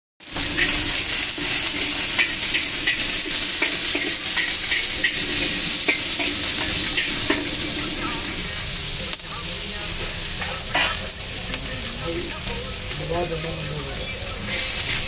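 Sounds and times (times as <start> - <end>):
metal spatula scraping a wok: 0.2 - 9.0, 10.0 - 12.9, 13.9 - 15.0
vegetables sizzling in a wok: 0.2 - 15.0.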